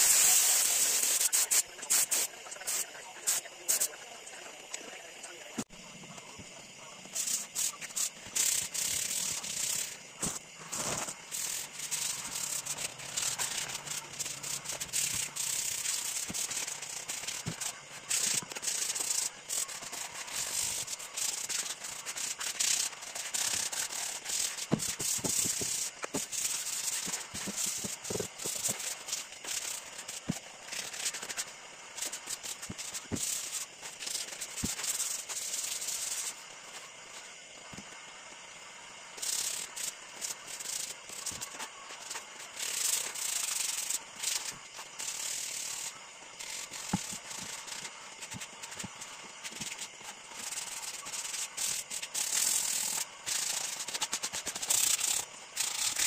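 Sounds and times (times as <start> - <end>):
sandpaper rubbing on wood: 0.0 - 3.9, 7.1 - 36.4, 39.2 - 56.0.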